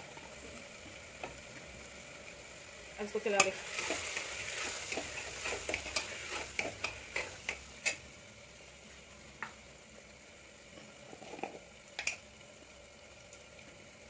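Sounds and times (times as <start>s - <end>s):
soft sizzle of frying: 0.0s - 14.0s.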